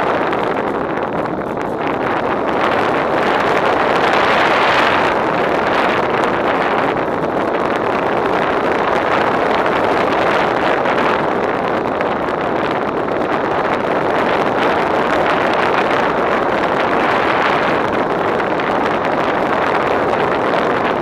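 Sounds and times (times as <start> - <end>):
wind rushing over microphone: 0.0 - 21.0.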